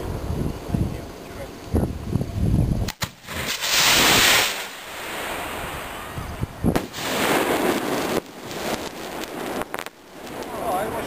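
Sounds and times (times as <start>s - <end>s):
rocket bursting pop: 2.8s - 5.4s, 6.6s - 10.5s
skyrocket hissing: 2.9s - 9.0s.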